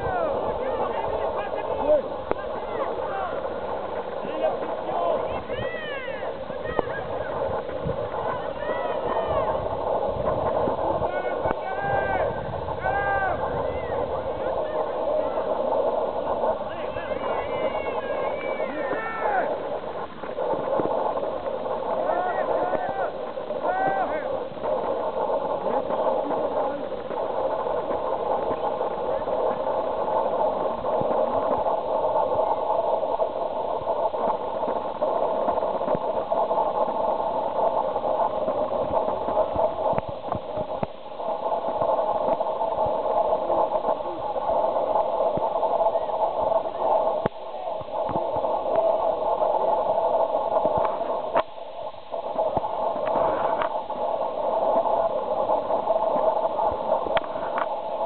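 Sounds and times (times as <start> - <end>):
muffled chatter of voices: 0.0 - 10.0, 10.7 - 19.7.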